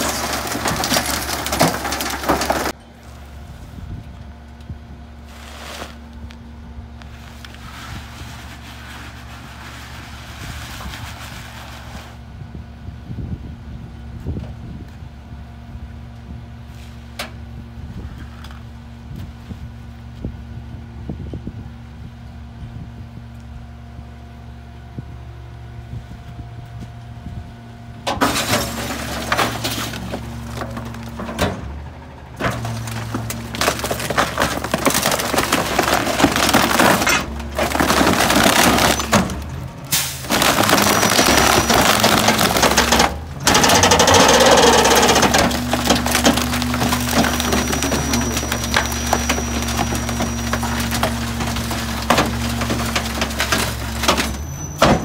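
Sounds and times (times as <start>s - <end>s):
wooden frame cracking and splintering: 0.0s - 2.8s, 32.4s - 55.0s
garbage truck idling: 0.0s - 7.6s, 23.8s - 55.0s.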